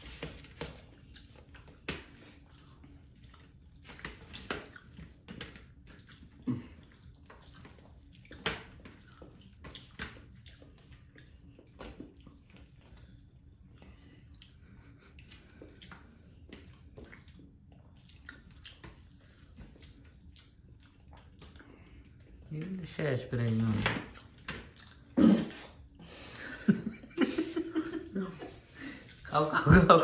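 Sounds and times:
wet squishing of hands mixing food: 0.0 - 30.0.

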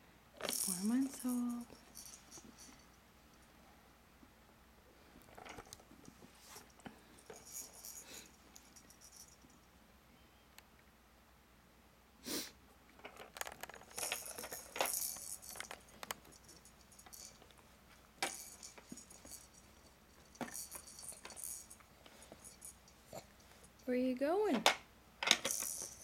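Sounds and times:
plastic rattle toys knocking: 0.4 - 2.7, 13.0 - 17.5, 18.2 - 19.6, 20.2 - 21.8, 24.5 - 26.0.

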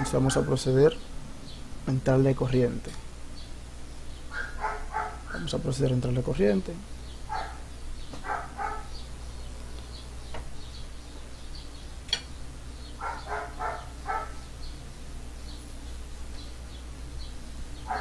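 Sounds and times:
birds chirping faintly: 0.0 - 18.0
dog barking: 4.3 - 5.4, 7.3 - 9.0, 13.0 - 14.4
sharp click: 12.1 - 12.3.

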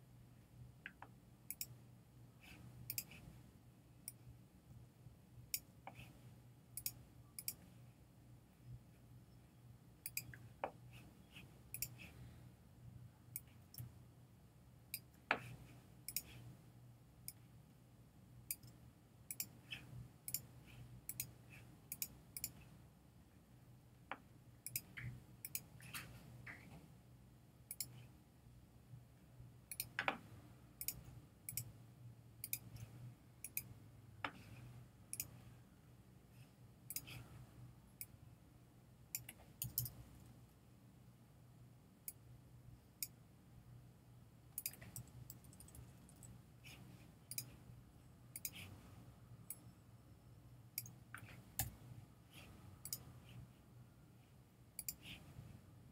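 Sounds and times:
faint low hum: 0.0 - 55.9
computer mouse clicks: 0.8 - 1.8, 2.5 - 3.3, 4.0 - 4.2, 6.8 - 7.7, 10.0 - 11.1, 11.7 - 12.2, 13.3 - 14.0, 14.9 - 16.5, 18.5 - 20.5, 21.1 - 22.7, 24.1 - 26.8, 27.7 - 28.1, 29.7 - 31.7, 32.4 - 35.4, 36.9 - 37.3, 39.1 - 40.3, 44.6 - 47.6, 48.3 - 48.8, 49.4 - 49.7, 50.8 - 51.8, 52.4 - 53.3, 54.8 - 55.3.

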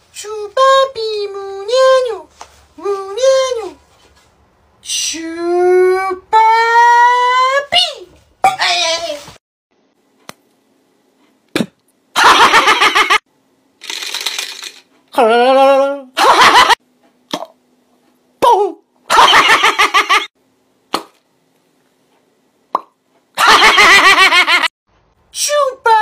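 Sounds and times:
laughter: 12.2 - 13.2, 16.2 - 16.8, 19.1 - 20.3, 23.4 - 24.7
comic voice clips: 15.2 - 16.2, 18.4 - 18.8.

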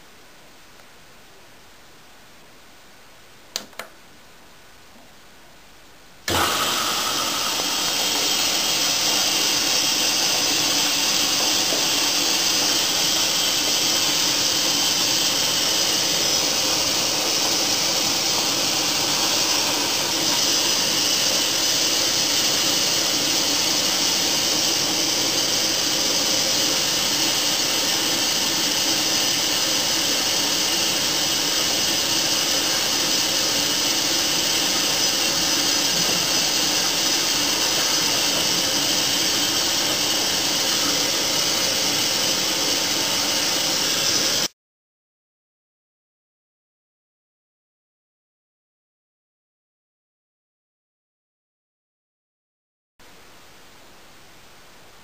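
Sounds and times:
washing machine drum rushing: 6.3 - 29.0.

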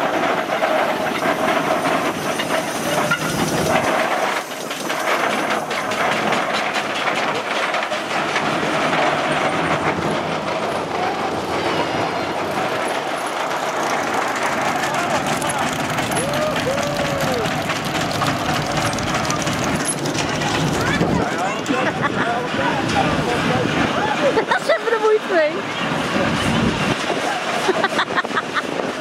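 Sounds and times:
steam hissing: 0.0 - 20.8
exhaust chuffing: 0.0 - 28.0
rhythmic mechanical clatter: 0.0 - 29.0.

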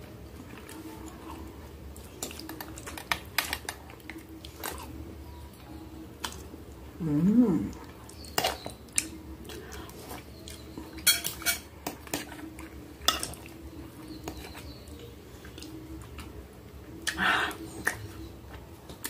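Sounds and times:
cutlery clinking on glass dish: 11.0 - 11.7.

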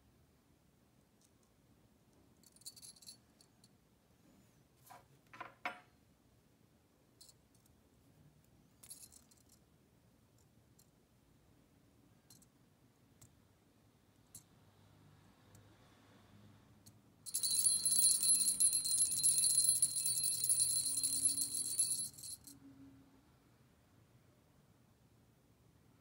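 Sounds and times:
small bell jingling: 2.4 - 3.6, 17.2 - 22.6.

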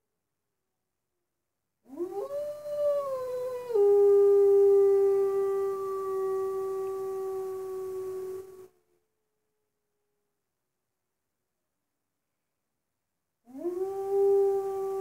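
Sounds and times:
wolf howling: 1.9 - 8.7, 13.5 - 15.0.

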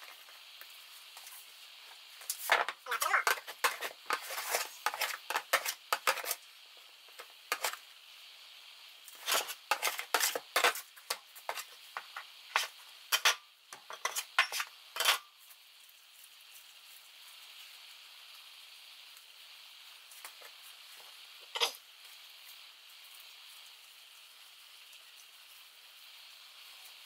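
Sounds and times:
metal scraper scraping plastic tray: 2.9 - 6.4, 7.5 - 7.8, 9.2 - 15.2.

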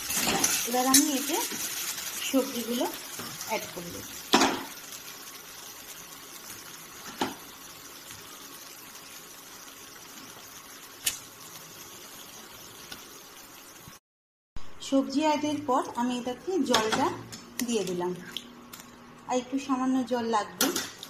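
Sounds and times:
vegetables clattering into wok: 0.0 - 1.4
food sizzling in oil: 0.0 - 14.0.

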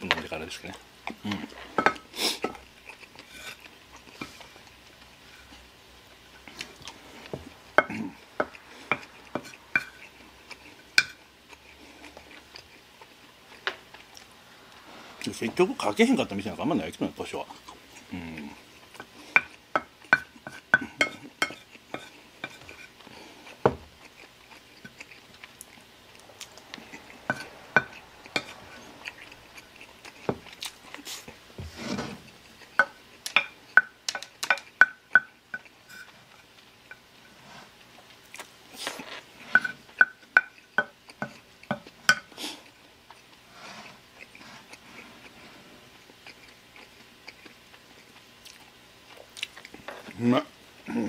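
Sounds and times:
person chewing: 1.1 - 15.3, 17.5 - 31.5, 32.3 - 50.2
wooden spoon scraping ceramic plate: 27.3 - 28.9, 31.6 - 32.3.

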